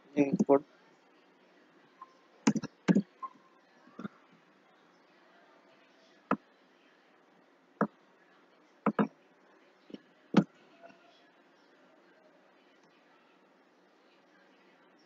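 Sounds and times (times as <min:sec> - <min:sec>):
computer mouse clicks: 0:02.5 - 0:03.0.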